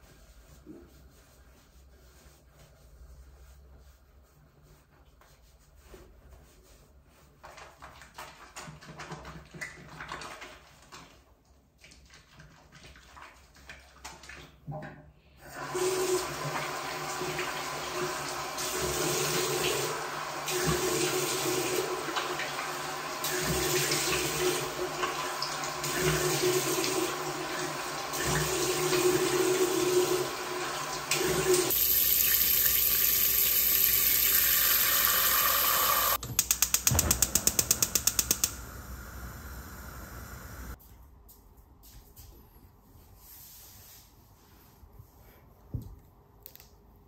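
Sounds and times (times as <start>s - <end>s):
tap water running into sink: 15.8s - 38.8s
gas stove igniter clicking: 36.2s - 40.7s.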